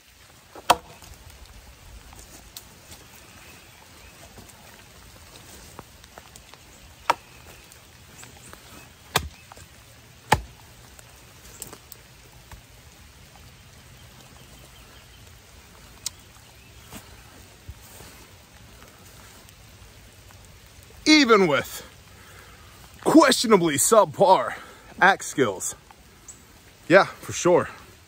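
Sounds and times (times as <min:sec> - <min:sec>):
steady rain: 0:00.0 - 0:28.0
axe chopping wood: 0:00.6 - 0:01.1, 0:09.1 - 0:09.6, 0:10.2 - 0:10.6.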